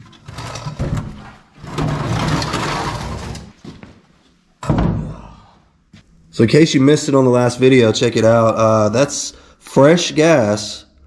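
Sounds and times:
metal tank scraping: 0.0s - 3.6s.

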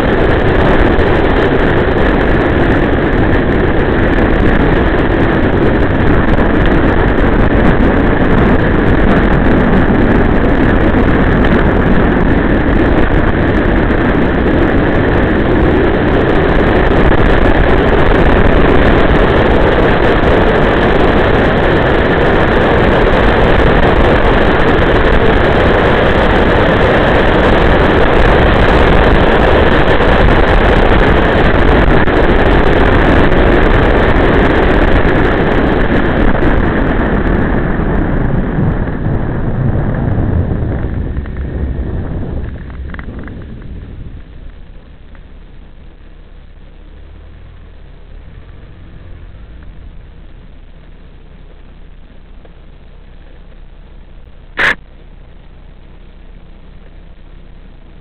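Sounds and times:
road noise: 0.0s - 58.0s
rushing wind: 0.0s - 58.0s
vehicle engine running: 0.0s - 58.0s.

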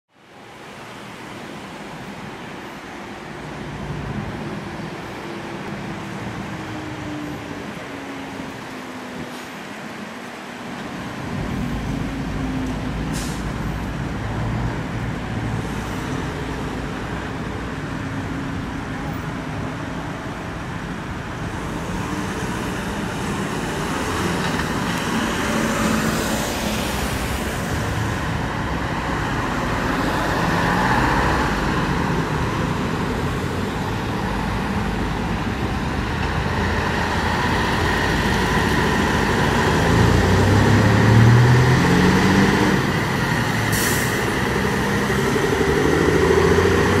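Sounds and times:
fire trucks driving past: 0.2s - 47.0s
vehicle rushing by: 21.8s - 47.0s.

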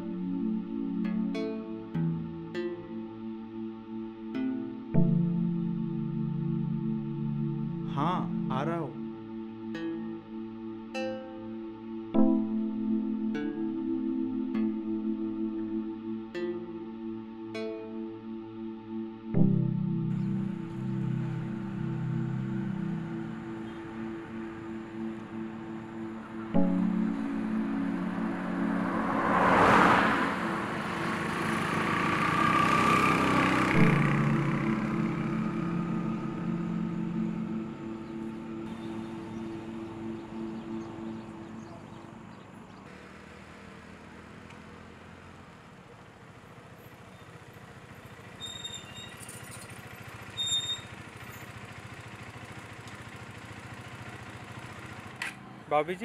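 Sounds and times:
background music chords: 0.0s - 42.6s
vehicle passing: 20.1s - 48.4s
motorcycle engine passing: 20.6s - 56.0s
short high-pitched squeaks: 48.3s - 51.0s.

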